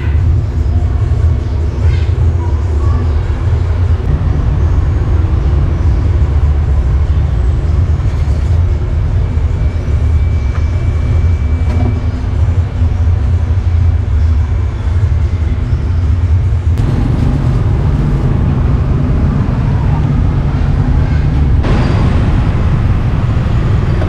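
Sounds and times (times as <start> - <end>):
low rumble of street traffic: 0.0 - 24.0
motorbikes passing: 16.8 - 24.0.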